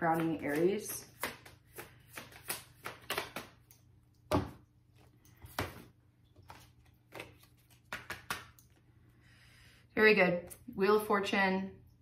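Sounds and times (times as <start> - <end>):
cards shuffling: 0.1 - 3.7, 6.4 - 8.6
cards slapping on table: 0.2 - 3.7, 7.1 - 8.6.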